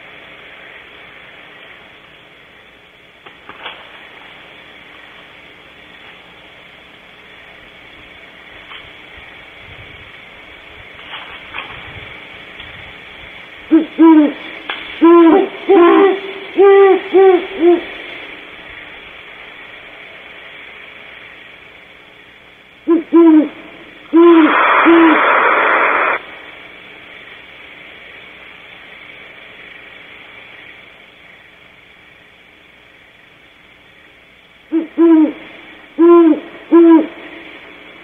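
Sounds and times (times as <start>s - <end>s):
owl deep hoots: 13.7s - 18.4s, 22.8s - 26.2s, 34.7s - 37.8s
owl hissing screech: 24.1s - 26.2s.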